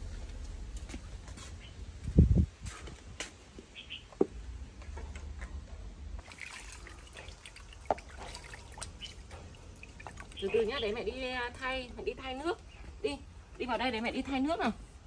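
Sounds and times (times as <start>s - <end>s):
water splashing in a plastic tub: 6.2s - 11.8s.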